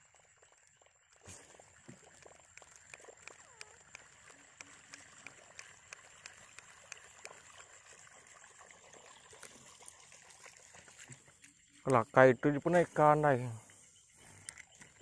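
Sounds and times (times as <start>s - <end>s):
water lapping around boat: 0.0s - 12.1s
light ticks: 2.2s - 7.4s.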